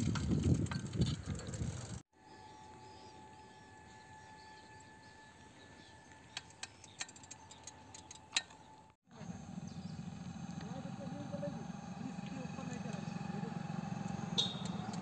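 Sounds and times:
small birds chirping: 0:02.3 - 0:15.0
sharp clicks: 0:06.3 - 0:08.6.

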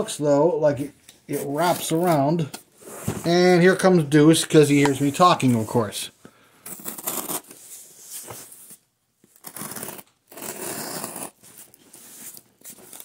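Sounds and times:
blade scraping through cardboard: 0:06.7 - 0:08.2, 0:09.4 - 0:13.0.

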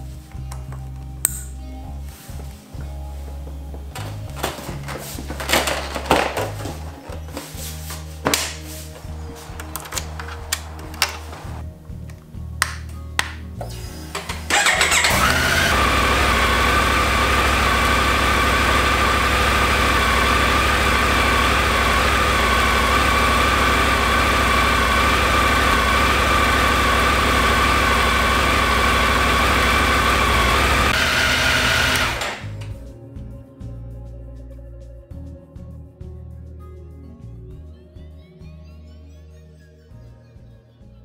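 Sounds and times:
motorcycle engine starting and idling: 0:04.0 - 0:07.2, 0:08.4 - 0:11.6, 0:14.1 - 0:32.8.

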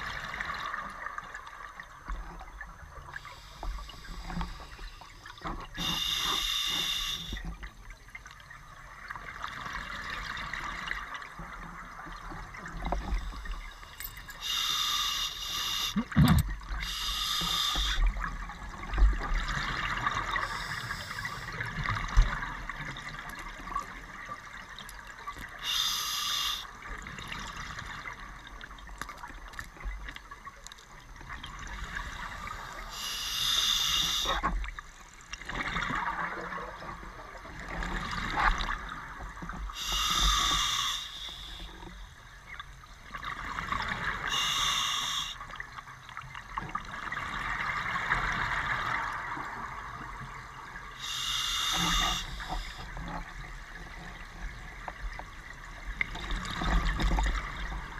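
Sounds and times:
diver breathing through regulator: 0:05.8 - 0:07.4, 0:13.2 - 0:16.0, 0:16.8 - 0:18.1, 0:20.4 - 0:21.6, 0:25.6 - 0:26.7, 0:32.2 - 0:34.4, 0:39.8 - 0:41.8, 0:44.3 - 0:45.4, 0:51.0 - 0:52.9.

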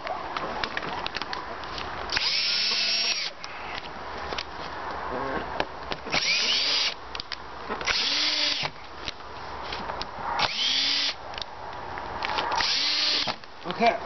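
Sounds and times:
cordless drill whining: 0:02.1 - 0:03.3, 0:06.1 - 0:07.0, 0:07.8 - 0:08.7, 0:10.4 - 0:11.2, 0:12.6 - 0:13.4.

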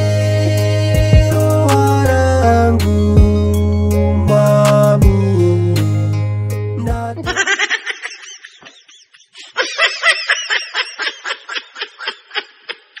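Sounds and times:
person laughing: 0:07.2 - 0:13.0.

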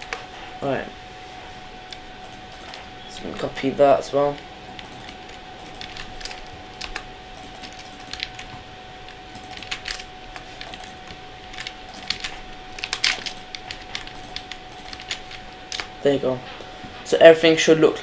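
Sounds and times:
faint steady hum: 0:00.0 - 0:18.0
keyboard and mouse clicking: 0:02.2 - 0:02.9, 0:04.7 - 0:08.6, 0:09.3 - 0:15.9.

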